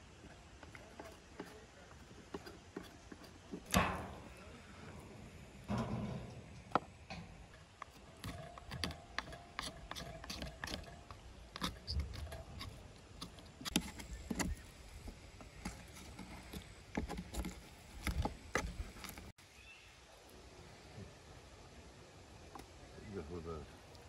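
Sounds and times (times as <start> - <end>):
knife scraping meat off bone: 7.9 - 14.6.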